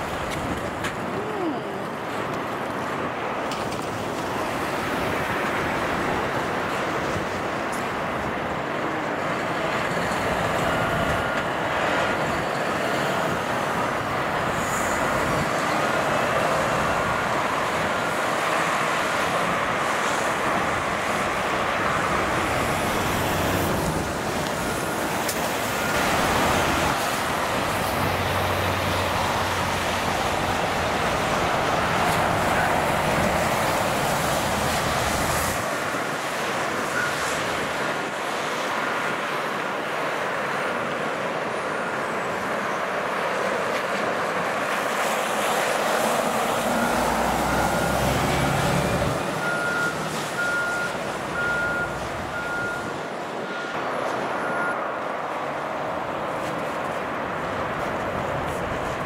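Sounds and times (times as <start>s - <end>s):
motorway traffic: 0.0s - 59.0s
truck engine hum: 0.0s - 59.0s.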